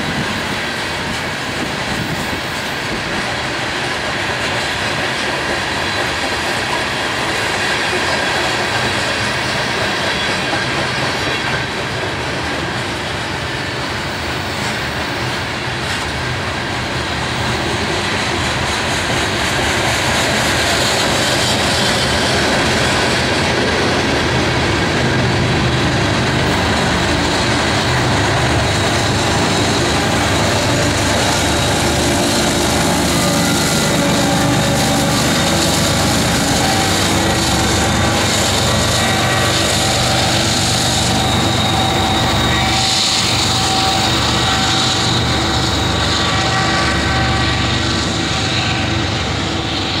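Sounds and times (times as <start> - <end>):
diesel locomotive engine drone: 0.0 - 50.0
hopper cars rolling by: 0.0 - 50.0
rumble of train wheels: 0.0 - 50.0.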